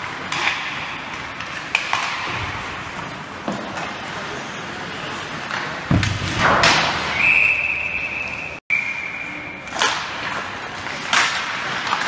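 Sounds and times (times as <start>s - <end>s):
thud: 5.9s - 7.2s
referee whistle long note: 7.2s - 9.5s.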